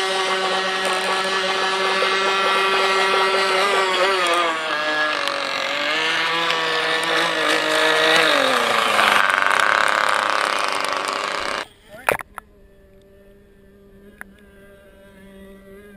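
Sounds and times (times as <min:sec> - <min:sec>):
rough engine rasp: 0:00.0 - 0:11.7
model boat engine at high revs: 0:00.0 - 0:11.8, 0:12.6 - 0:15.9.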